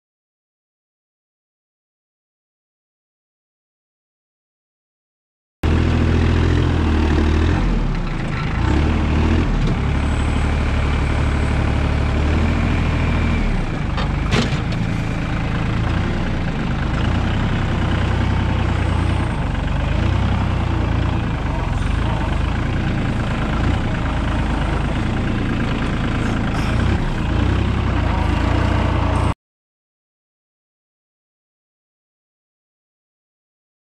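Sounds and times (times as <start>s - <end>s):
tractor diesel engine running: 5.6s - 29.4s.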